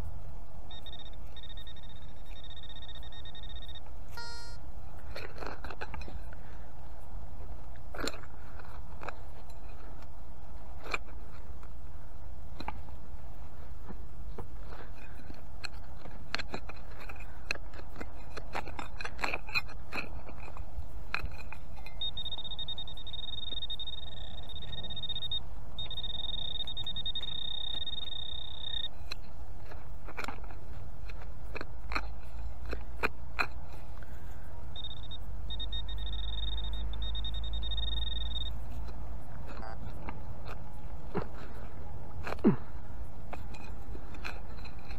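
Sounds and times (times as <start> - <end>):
high steady tone: 0.7 - 4.7, 21.8 - 29.0, 34.7 - 38.9
dry soil scraping and crunching: 4.9 - 44.9.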